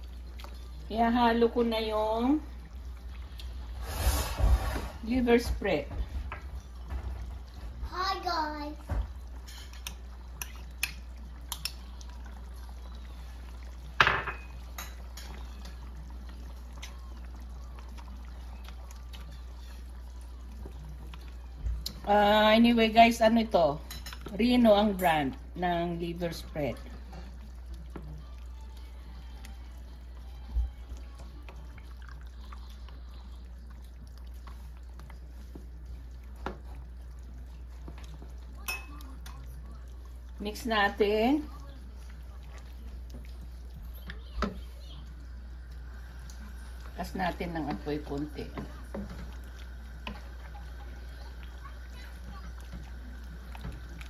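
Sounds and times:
metal spoon clinking on bowl: 0:38.7 - 0:39.1.

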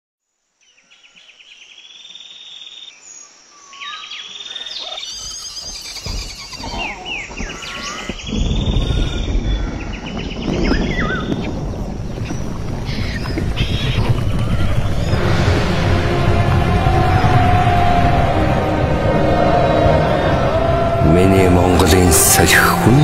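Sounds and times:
birds chirping and trilling: 0:00.6 - 0:15.6
low rumble: 0:08.4 - 0:23.0.

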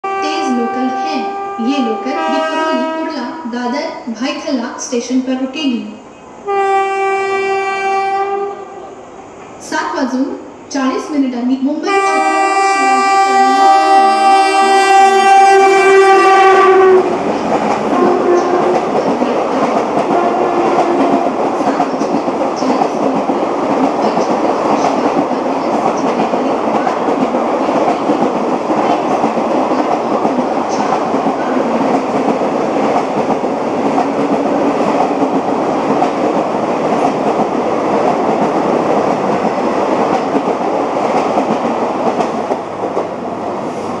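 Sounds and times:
train horn: 0:00.0 - 0:03.4, 0:06.4 - 0:09.0, 0:11.8 - 0:17.2, 0:17.9 - 0:19.0, 0:20.1 - 0:21.4
train coaches rumbling and clattering: 0:00.0 - 0:05.4, 0:08.4 - 0:44.0.

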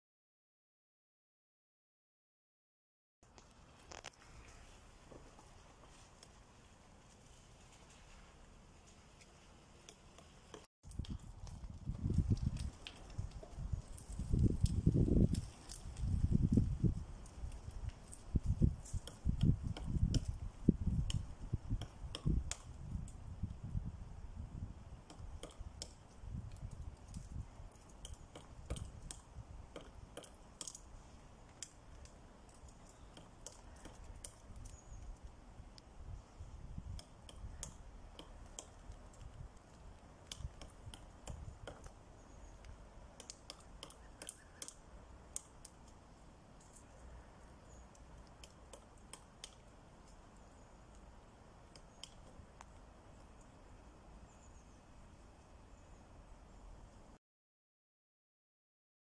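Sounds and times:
woodpecker tapping on tree trunk: 0:17.4 - 0:23.2, 0:25.0 - 0:35.9, 0:36.8 - 0:46.0, 0:47.7 - 0:50.2, 0:50.9 - 0:52.9.

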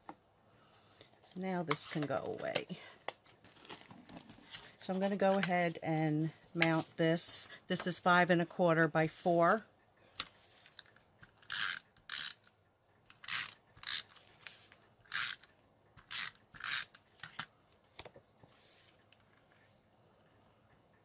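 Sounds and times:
tape runner ratcheting rasp: 0:11.4 - 0:12.5, 0:13.1 - 0:14.2, 0:15.1 - 0:17.0.

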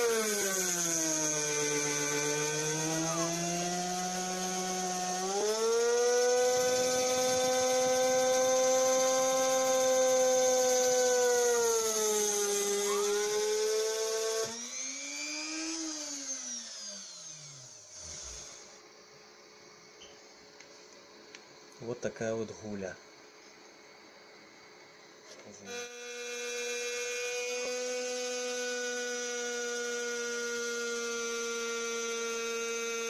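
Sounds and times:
router motor whine cutting plastic: 0:00.0 - 0:18.8, 0:25.3 - 0:33.0.

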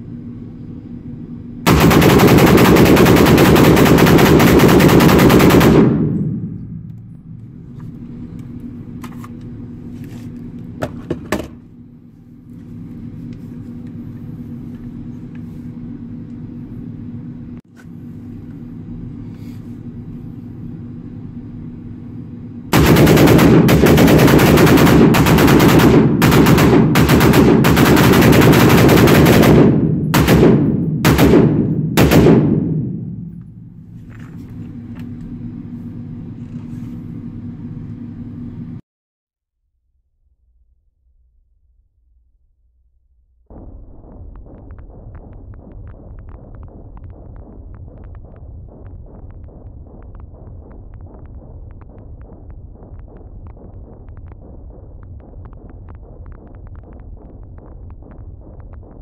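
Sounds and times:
rapid gunfire echoing indoors: 0:01.7 - 0:07.2, 0:22.7 - 0:33.8, 0:43.5 - 0:59.0.

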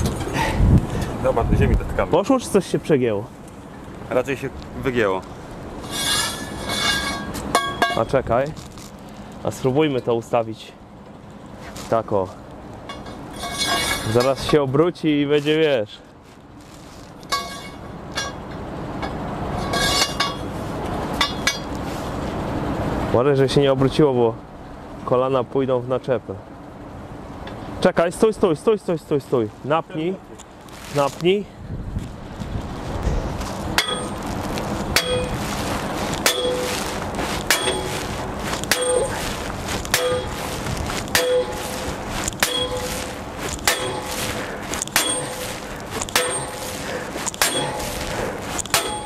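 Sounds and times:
sledgehammer clanging on steel pipe: 0:05.8 - 0:08.3, 0:12.9 - 0:14.8, 0:17.3 - 0:20.5, 0:21.2 - 0:21.8, 0:33.8 - 0:34.2, 0:34.9 - 0:35.4, 0:36.2 - 0:36.9, 0:37.5 - 0:49.0.

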